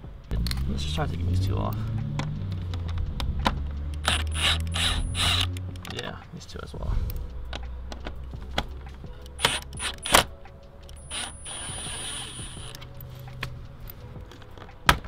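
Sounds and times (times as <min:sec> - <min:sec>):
hissing whirring: 0:03.9 - 0:05.6, 0:09.4 - 0:10.3, 0:11.0 - 0:12.8.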